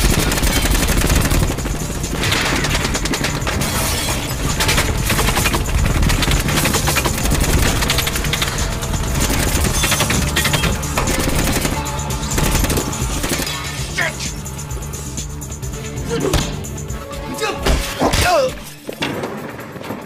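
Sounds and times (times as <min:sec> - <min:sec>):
automatic gunfire: 0:00.0 - 0:13.7.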